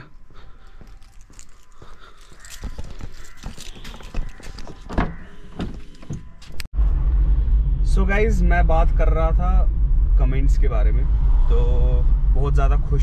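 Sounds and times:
footsteps on hard ground: 0:00.1 - 0:06.7.

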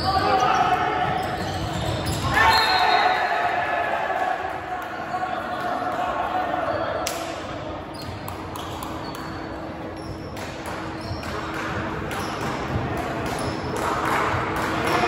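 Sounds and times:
sneaker squeaks on floor: 0:00.0 - 0:02.9, 0:07.8 - 0:13.8
murmur of voices: 0:00.0 - 0:15.0.

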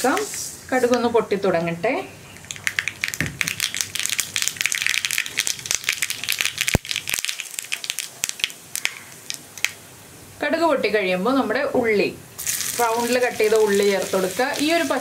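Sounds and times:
seeds popping in hot oil: 0:02.4 - 0:09.8, 0:12.4 - 0:15.0.

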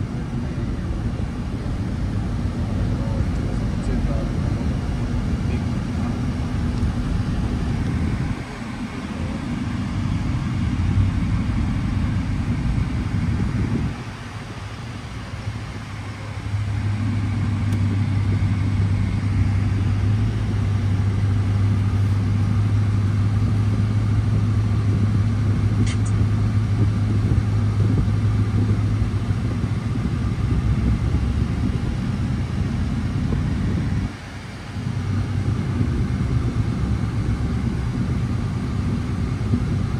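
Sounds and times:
pickup truck engine drone: 0:00.0 - 0:39.9
short click: 0:25.8 - 0:26.2.

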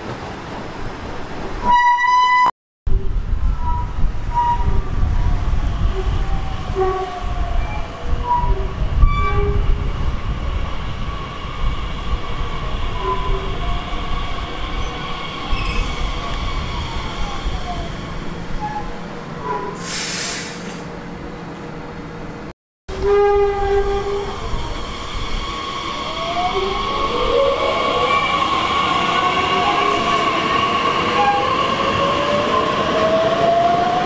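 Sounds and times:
train horn blast: 0:06.7 - 0:07.2, 0:22.9 - 0:24.3.

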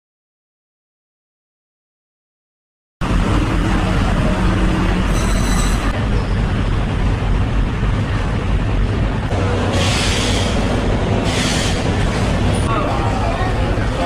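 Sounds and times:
brief high-pitched tone: 0:05.1 - 0:05.9.

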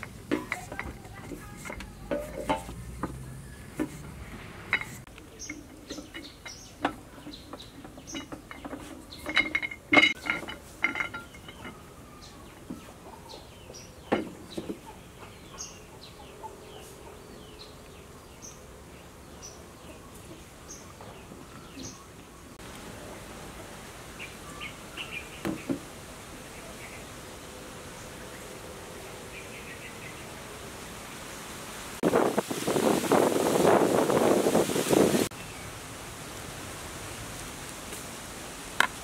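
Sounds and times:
birds chirping: 0:00.0 - 0:22.6, 0:23.6 - 0:31.5.

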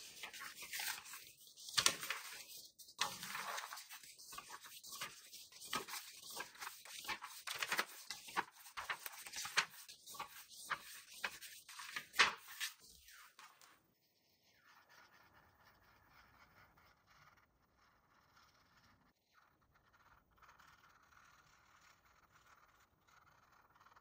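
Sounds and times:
paper pages turning: 0:00.0 - 0:13.8.

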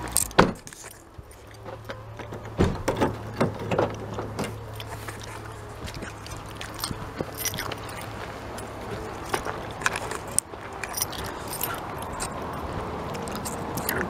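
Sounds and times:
low hum: 0:00.0 - 0:14.0
footsteps crunching on gravel: 0:04.0 - 0:14.0.

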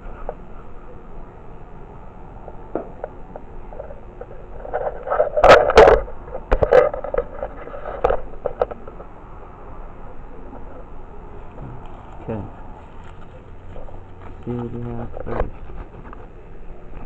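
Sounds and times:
handling noise on microphone: 0:02.6 - 0:09.2, 0:11.8 - 0:16.4.

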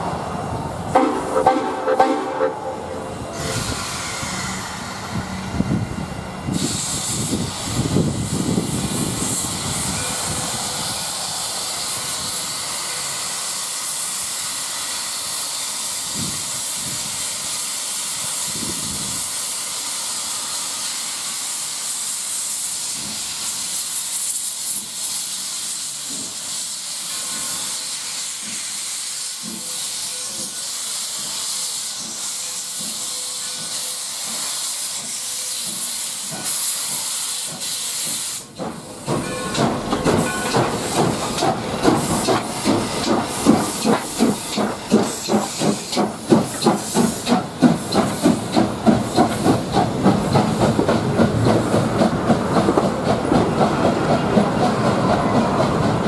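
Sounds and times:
steam locomotive hissing: 0:00.0 - 0:56.0
locomotive uneven pulsing: 0:37.5 - 0:56.0.

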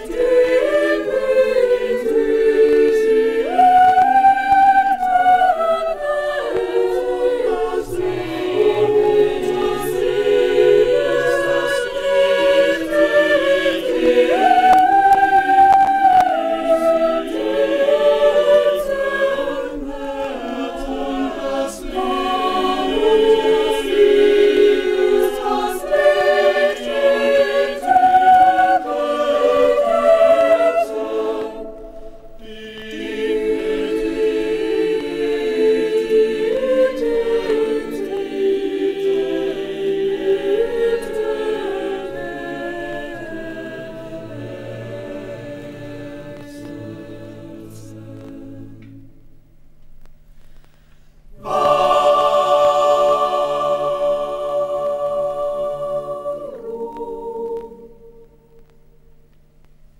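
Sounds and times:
choir singing: 0:00.0 - 0:49.2, 0:51.3 - 0:58.7.

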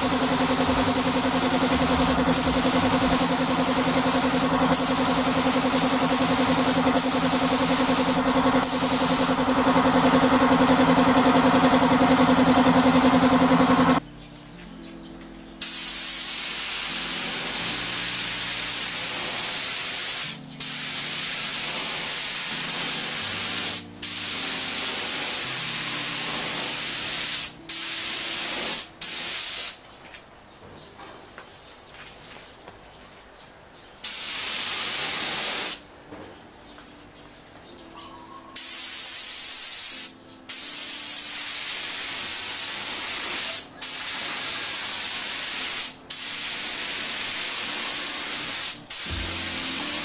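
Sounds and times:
machine hum: 0:00.0 - 0:14.0
paint spray gun hissing: 0:00.0 - 0:14.0, 0:15.6 - 0:29.8, 0:34.0 - 0:35.9, 0:38.6 - 0:50.0.

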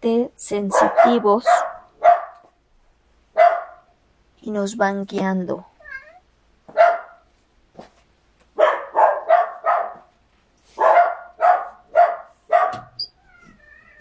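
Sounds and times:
dogs barking: 0:00.7 - 0:02.5, 0:03.3 - 0:03.9, 0:06.7 - 0:07.3, 0:08.6 - 0:10.1, 0:10.8 - 0:13.0.

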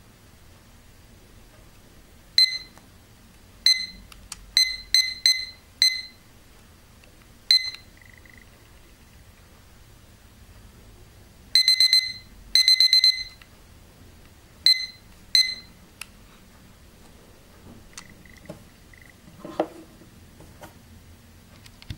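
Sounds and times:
kitchen timer beeping: 0:02.4 - 0:02.8, 0:03.6 - 0:06.2, 0:07.5 - 0:08.6, 0:11.6 - 0:13.5, 0:14.6 - 0:15.8.

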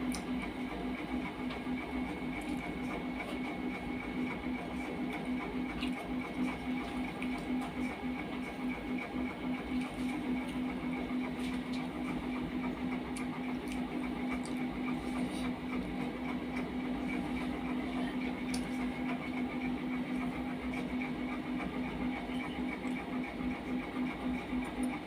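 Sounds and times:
fast-pulsing machine hum: 0:00.0 - 0:25.0.

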